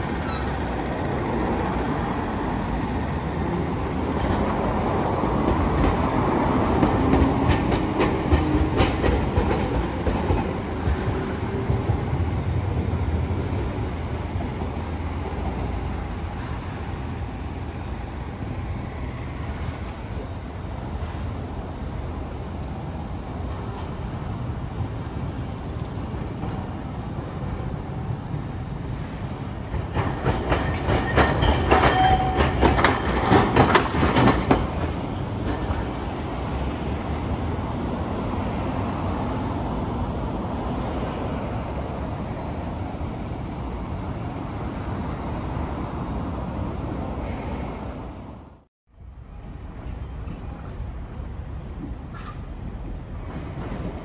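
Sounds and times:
tram wheels clacking over rail joints: 0.0 - 17.2, 23.4 - 44.1, 49.4 - 54.0
street traffic noise: 0.0 - 54.0.

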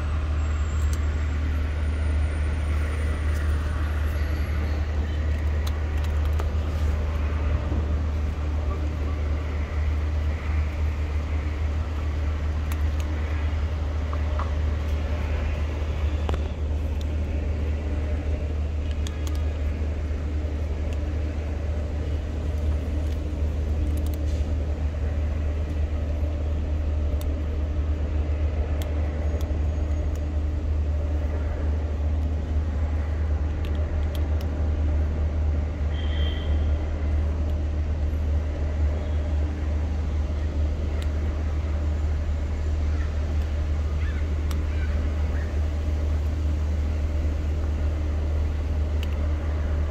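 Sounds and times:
traffic rumble: 0.0 - 49.9
cats chewing dry kibble: 3.2 - 35.6, 43.2 - 49.9.

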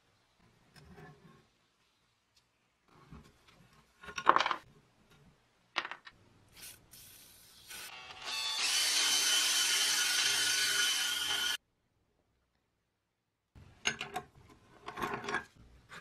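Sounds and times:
drill spinning wire brush on metal: 7.7 - 11.6.

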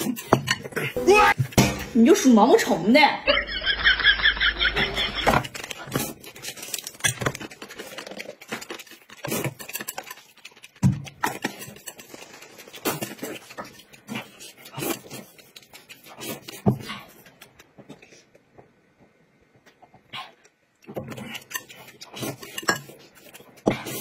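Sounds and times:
noodles being slurped and chewed: 5.4 - 18.4, 19.8 - 24.0.

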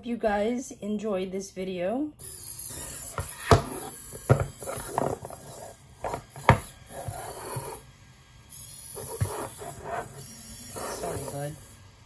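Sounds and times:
toy robot servo noise: 2.2 - 7.9, 8.5 - 12.0.

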